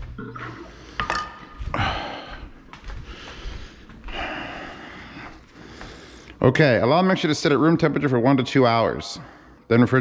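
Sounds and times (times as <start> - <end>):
man exhaling: 1.7 - 2.5.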